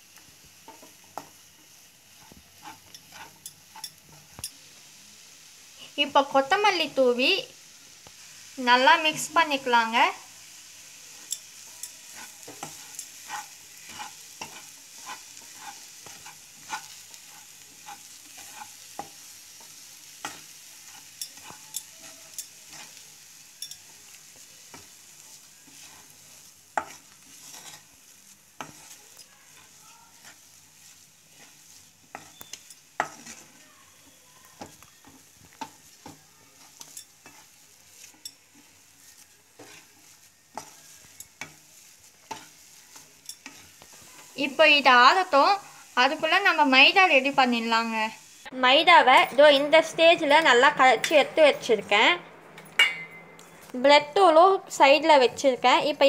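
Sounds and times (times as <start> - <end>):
faint sizzle: 0.0 - 56.0
wooden spatula scraping pan: 2.1 - 4.4, 11.1 - 23.1, 23.8 - 47.8.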